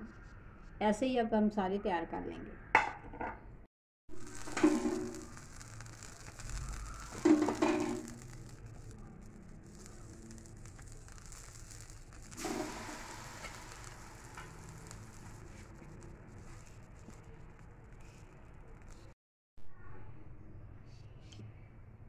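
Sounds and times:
dough sizzling on hot iron: 4.1 - 19.2.

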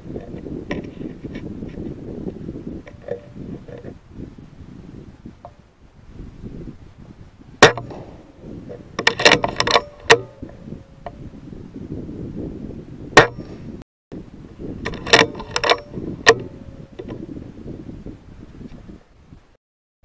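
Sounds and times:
air rifle shot: 7.6 - 8.5
metallic lever clicks: 9.0 - 10.6, 14.8 - 17.1.

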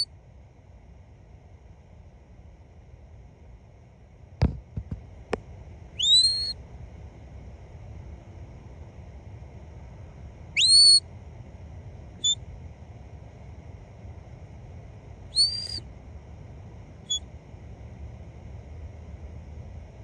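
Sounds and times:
low background rumble: 0.0 - 20.0
high loud whistles: 6.0 - 6.6, 10.6 - 11.0, 15.3 - 15.8.

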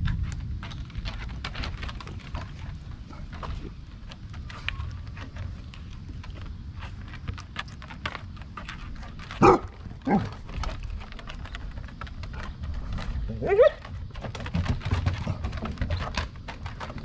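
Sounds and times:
dogs barking: 9.4 - 10.3.

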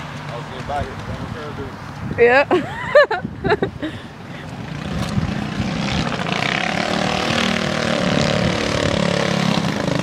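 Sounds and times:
go-kart engine buzzing: 4.3 - 10.0.

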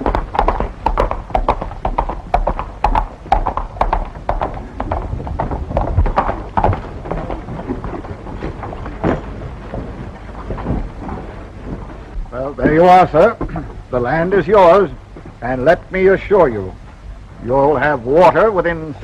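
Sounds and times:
hoofbeats on dirt: 0.0 - 13.7.

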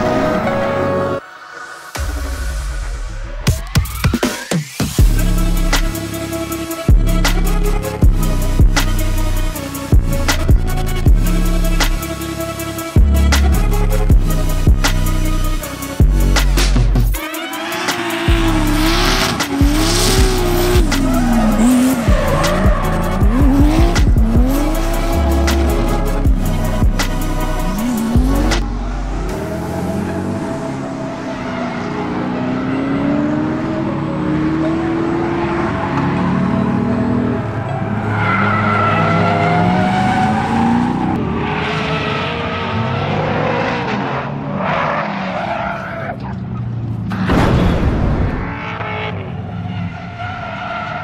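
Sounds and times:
car engine revving: 12.7 - 45.4.

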